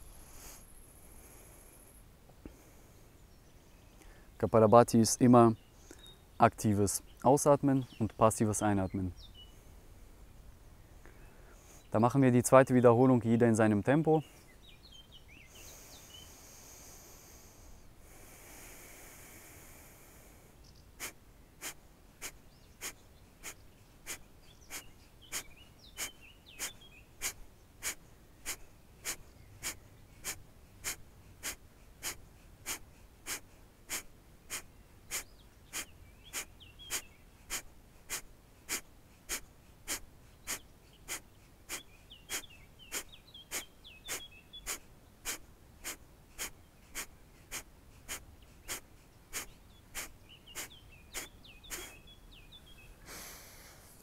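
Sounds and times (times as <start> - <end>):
forceful nasal exhalations: 0.0 - 2.8, 15.5 - 52.1, 52.7 - 54.0
faint birdsong chirps: 0.0 - 54.0.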